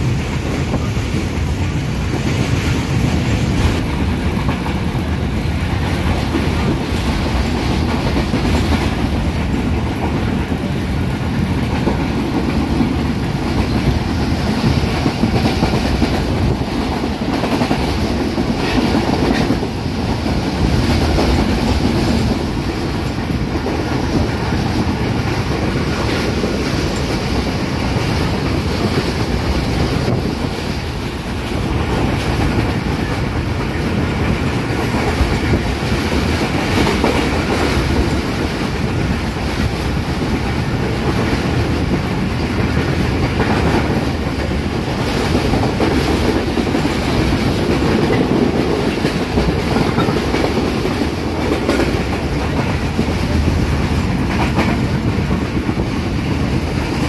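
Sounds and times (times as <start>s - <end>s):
train wheels rumbling on track: 0.0s - 57.0s
wheels clacking over rail joints: 0.0s - 57.0s.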